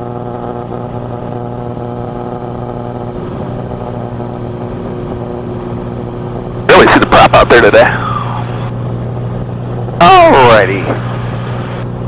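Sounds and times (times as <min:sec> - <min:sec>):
propeller plane engine droning: 0:00.0 - 0:12.0.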